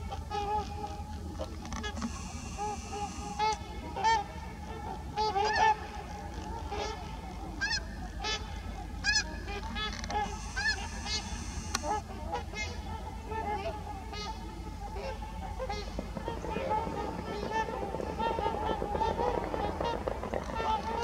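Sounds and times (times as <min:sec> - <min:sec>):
swans honking: 0:01.8 - 0:13.0.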